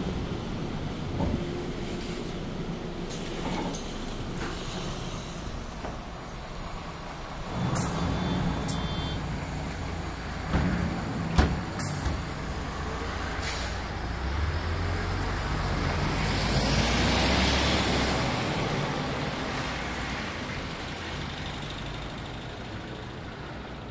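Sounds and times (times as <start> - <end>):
bus engine idling: 0.0 - 16.6, 17.7 - 23.9
compressed air hissing: 13.4 - 13.9.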